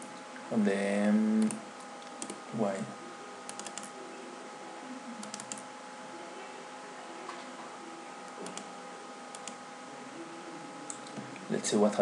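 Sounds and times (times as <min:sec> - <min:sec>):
faint hum: 0:00.0 - 0:12.0
keyboard typing: 0:01.4 - 0:02.4, 0:03.4 - 0:04.0, 0:05.2 - 0:05.7, 0:08.3 - 0:08.7, 0:09.3 - 0:09.6.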